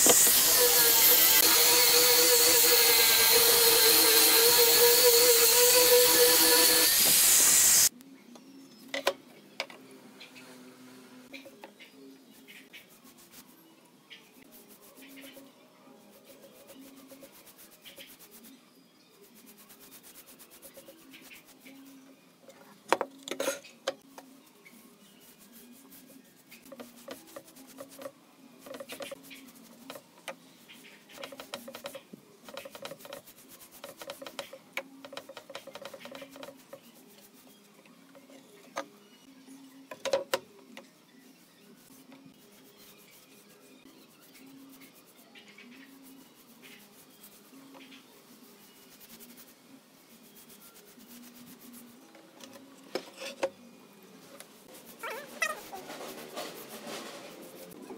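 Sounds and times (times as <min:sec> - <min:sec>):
paintbrush swishing on wood: 0:12.4 - 0:13.6, 0:14.4 - 0:18.6, 0:24.7 - 0:30.0, 0:41.7 - 0:52.1, 0:54.2 - 0:57.9.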